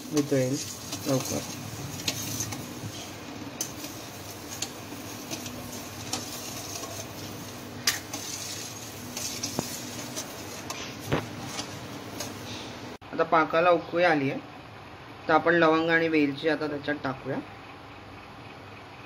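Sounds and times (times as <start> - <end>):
spoon scraping and clinking metal pan: 0.0 - 12.4.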